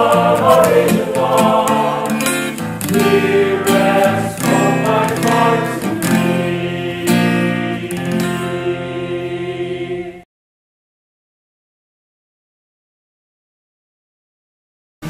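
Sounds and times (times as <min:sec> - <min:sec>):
plucked acoustic guitar: 0:00.0 - 0:10.0
voices singing a slow melody: 0:00.0 - 0:10.3.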